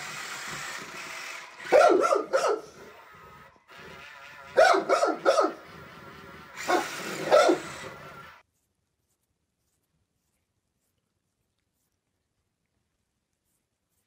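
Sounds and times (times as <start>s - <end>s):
dog barking: 1.7s - 2.8s, 4.6s - 5.6s, 6.6s - 7.7s.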